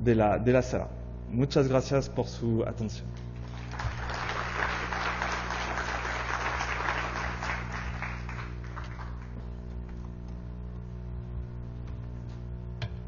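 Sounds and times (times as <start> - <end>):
low hum: 0.0 - 13.0
audience applauding: 3.4 - 9.4.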